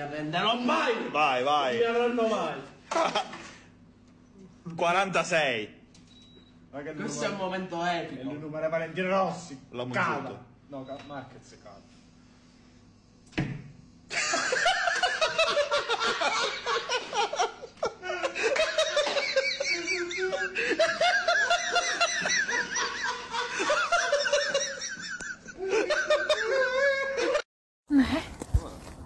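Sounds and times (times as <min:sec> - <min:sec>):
hearty laughter: 0:14.1 - 0:27.4.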